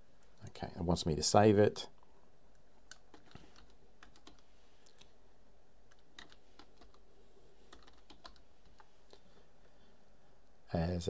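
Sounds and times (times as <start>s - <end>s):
computer keyboard typing: 2.8s - 4.5s, 5.9s - 7.0s, 7.7s - 8.9s.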